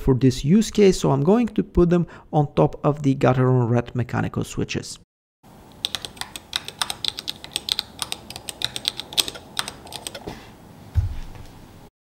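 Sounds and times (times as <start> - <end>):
mechanical keyboard clicks: 5.7 - 10.2
low thump: 10.9 - 11.4.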